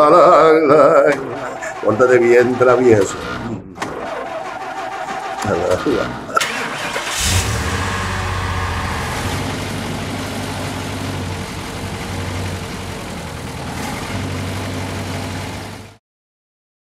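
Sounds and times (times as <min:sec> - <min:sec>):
vehicle engine idling: 0:00.0 - 0:16.0.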